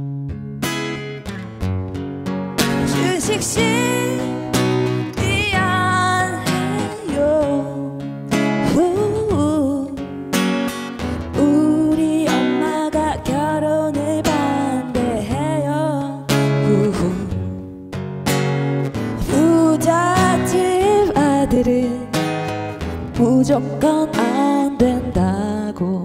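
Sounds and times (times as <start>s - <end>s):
guitar accompaniment: 0.0s - 26.0s
woman singing blues: 2.6s - 17.9s, 19.0s - 26.0s.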